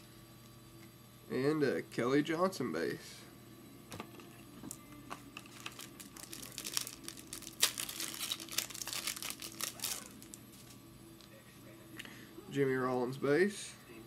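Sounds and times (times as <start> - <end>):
foil wrapper crinkling: 5.4 - 10.8.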